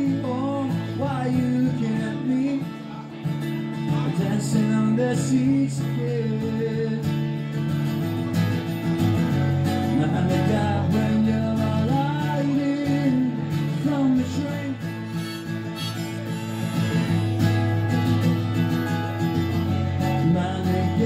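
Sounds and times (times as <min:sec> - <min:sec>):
acoustic guitar strumming: 0:00.0 - 0:21.0
harmonica solo with bending notes: 0:14.7 - 0:19.6.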